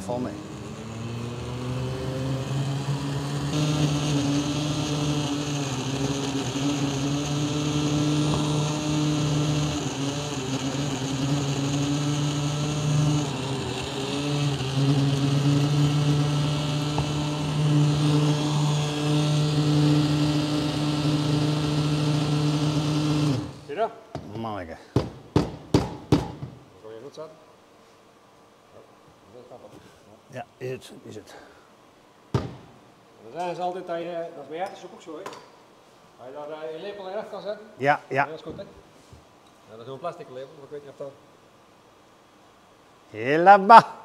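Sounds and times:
electric mixer motor hum: 0.0 - 23.7.

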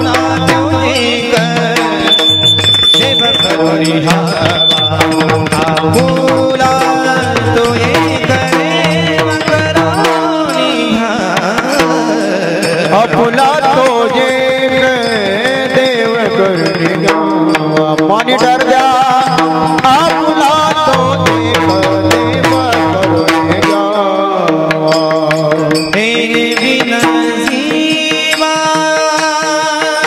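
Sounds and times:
hand cymbals clashing: 0.0 - 13.0
sliding melody line: 0.0 - 17.0
drum beating: 0.0 - 30.0.

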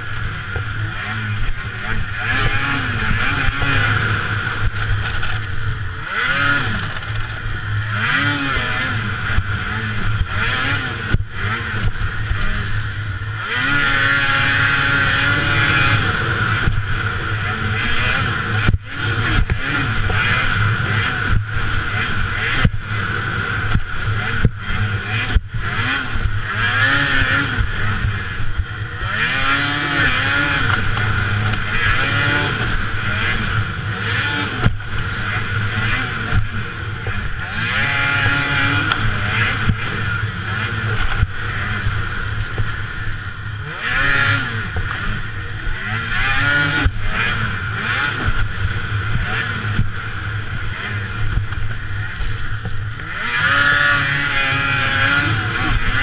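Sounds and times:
snowmobile engine revving: 0.0 - 56.0.

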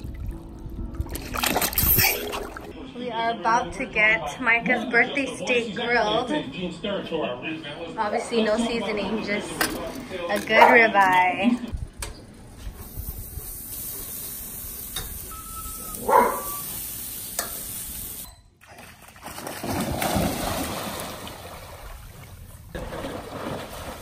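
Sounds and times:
dog splashing in a pool: 1.1 - 2.7, 18.6 - 24.0
steak sizzling on a grill: 12.8 - 18.2.

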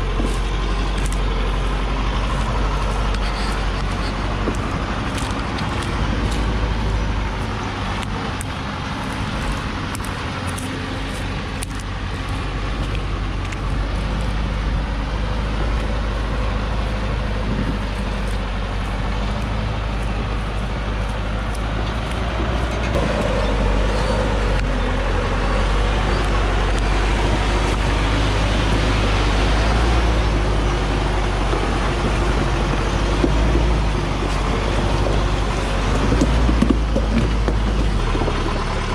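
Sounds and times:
truck diesel engine under load: 0.0 - 38.9.

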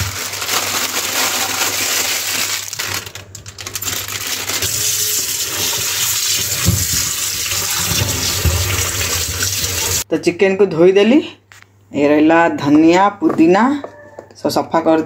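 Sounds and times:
tap water splashing into steel bowl: 5.6 - 10.0.

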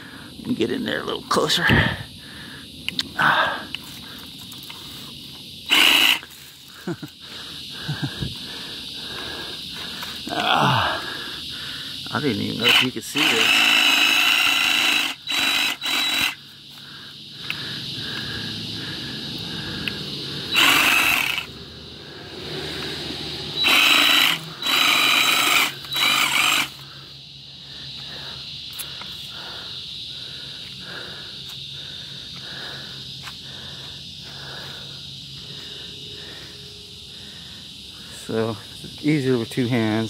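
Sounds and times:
cicadas buzzing: 0.0 - 40.0
reciprocating saw cutting: 5.6 - 6.3, 12.2 - 16.4, 19.7 - 21.6, 22.2 - 26.8.

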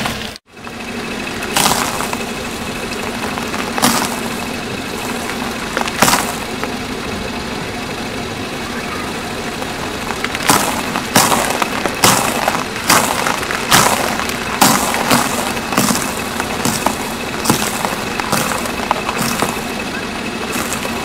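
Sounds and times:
steady background noise: 0.0 - 21.0
tyre crushing biscuits: 1.4 - 6.8, 9.5 - 19.7, 20.5 - 21.0.

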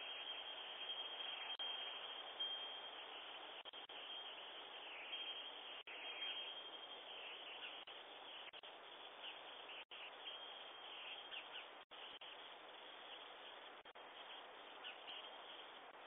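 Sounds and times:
faint microphone hiss: 0.0 - 16.0.

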